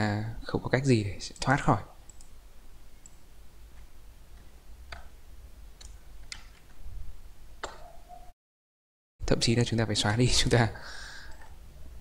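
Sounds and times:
computer mouse clicks: 1.4s - 2.3s, 3.8s - 5.1s, 5.8s - 6.7s.

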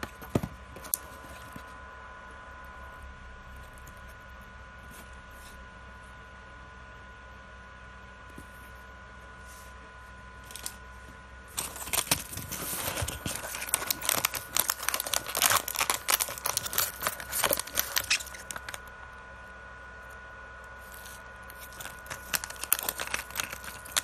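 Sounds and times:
plastic wrappers crinkling: 10.5s - 10.8s, 11.5s - 18.9s, 20.8s - 24.0s.

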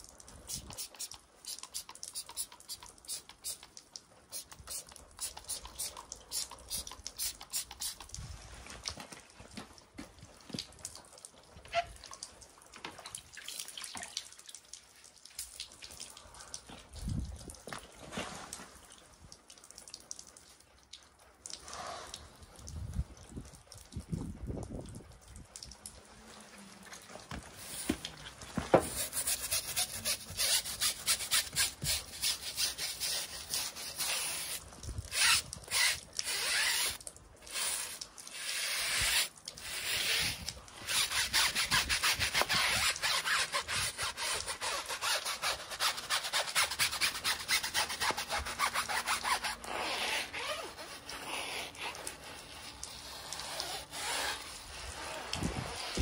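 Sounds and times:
brush scrubbing a tyre: 0.5s - 3.7s, 4.3s - 8.1s, 27.6s - 28.0s, 28.6s - 56.0s.

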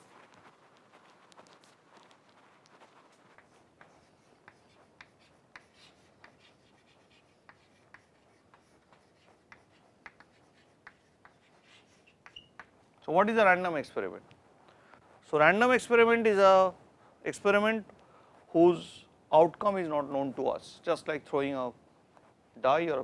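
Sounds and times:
chalk writing on blackboard: 2.9s - 12.8s.

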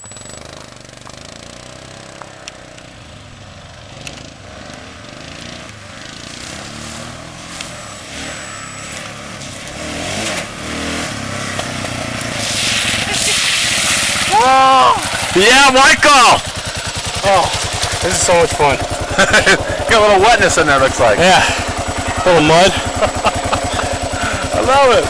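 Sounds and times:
motorcycle and atv engines: 0.0s - 25.0s
tyres splashing through puddles: 0.3s - 25.0s.

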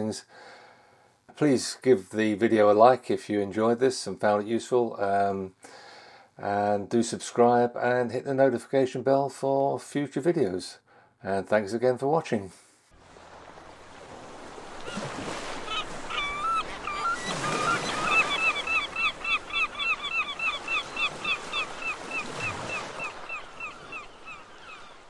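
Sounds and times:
surf washing on shore: 13.0s - 25.0s
gull yelping call: 14.8s - 25.0s.

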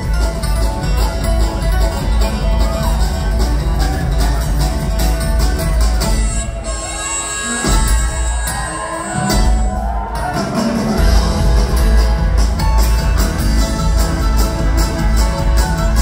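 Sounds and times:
upright bass: 0.0s - 9.8s, 10.4s - 16.0s
acoustic guitars: 0.0s - 16.0s
drums: 0.0s - 16.0s
fiddle: 0.0s - 16.0s.

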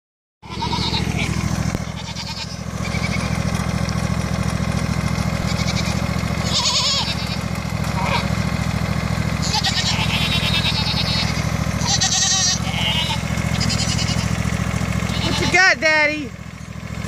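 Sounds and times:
goats bleating: 0.4s - 3.7s, 5.1s - 8.4s, 9.3s - 16.3s
riding mower engine running: 0.4s - 17.0s.

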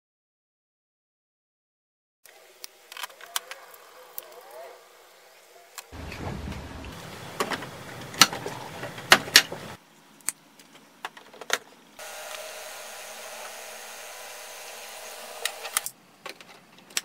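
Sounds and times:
steady hum: 4.9s - 10.2s, 12.0s - 15.9s
printer whirring: 6.0s - 9.8s, 12.0s - 15.9s.

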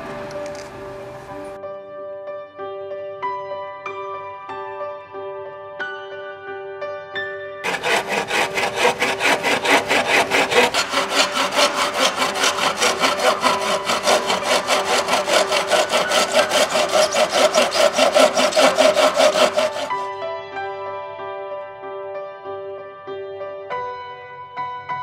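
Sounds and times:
hand saw cutting bamboo: 7.6s - 20.1s.

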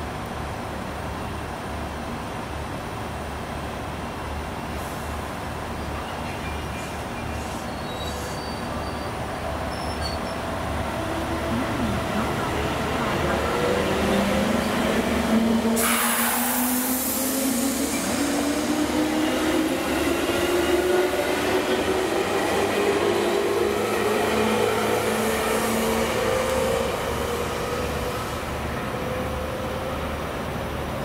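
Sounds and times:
wheels rumbling on rail: 0.0s - 31.0s
sudden hiss: 15.8s - 18.3s.

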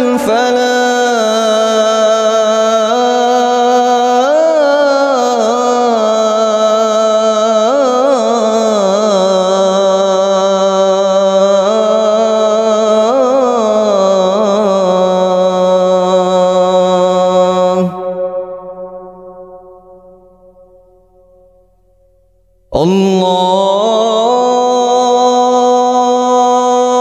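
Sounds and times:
man singing call to prayer: 0.0s - 19.7s, 22.7s - 27.0s.

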